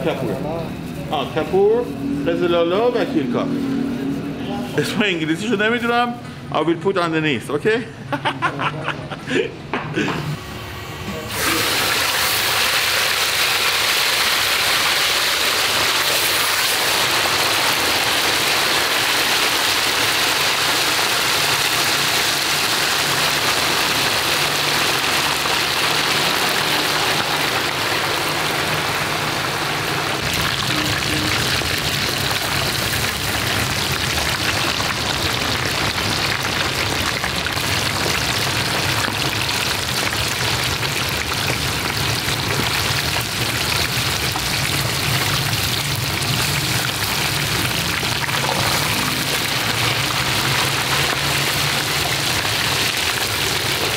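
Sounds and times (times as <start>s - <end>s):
fish deep-frying in oil: 11.3s - 53.9s.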